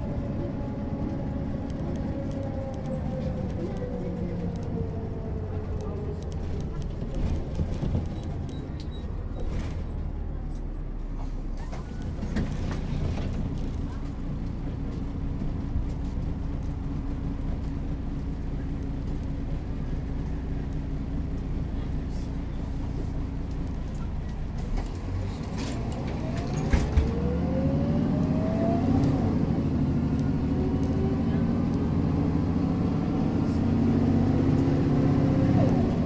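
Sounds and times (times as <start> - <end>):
bus diesel engine running: 0.0 - 36.0
rising engine whine: 25.0 - 36.0.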